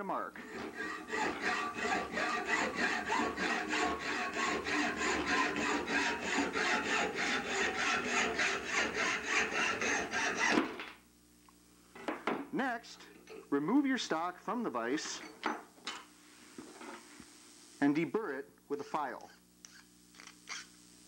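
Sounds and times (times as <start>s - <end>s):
hacksaw cutting metal: 0.4s - 10.7s.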